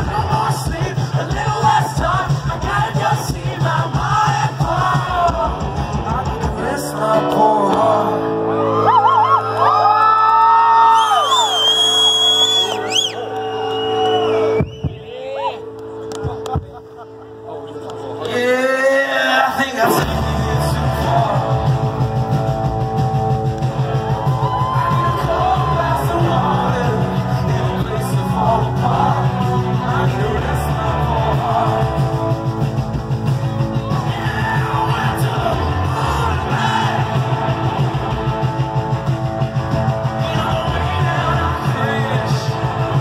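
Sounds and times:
man singing and shouting: 0.0s - 8.9s, 18.2s - 22.0s, 24.7s - 32.4s, 33.6s - 37.5s, 40.0s - 43.0s
rock band playing live: 0.0s - 10.8s, 11.8s - 43.0s.

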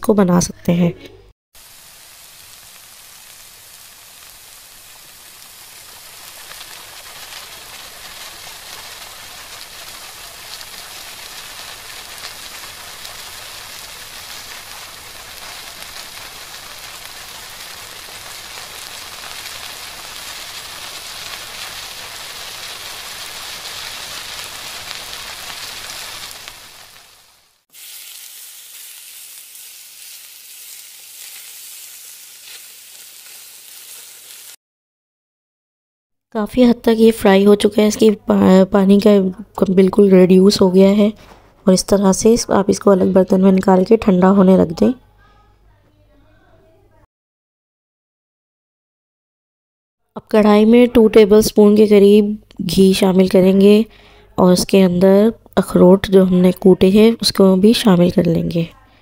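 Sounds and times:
paste sizzling in a pan: 1.6s - 34.6s
spatula stirring in pan: 4.1s - 27.2s, 27.8s - 34.6s.

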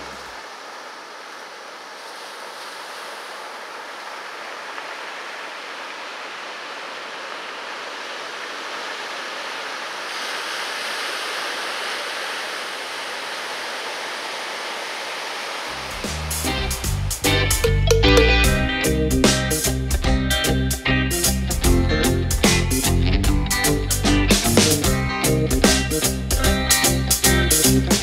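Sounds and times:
ocean surf breaking: 0.0s - 17.4s.

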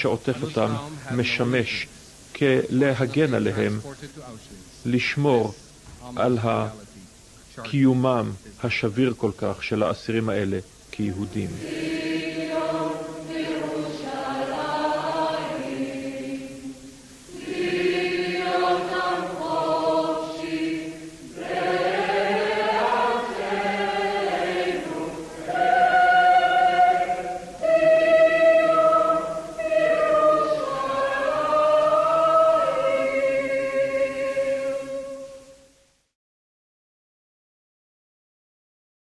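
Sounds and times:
choir singing slow song: 0.0s - 3.8s, 10.8s - 35.9s.

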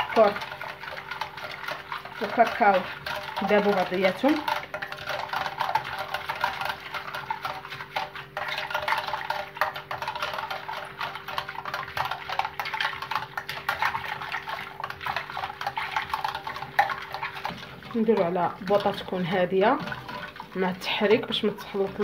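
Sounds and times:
whisk scraping metal saucepan: 0.0s - 22.0s.

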